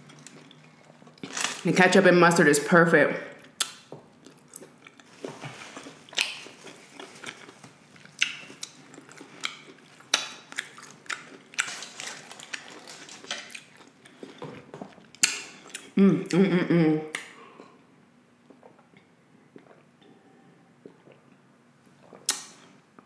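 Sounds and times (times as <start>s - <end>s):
close chewing mouth smacks: 5.8s - 14.4s.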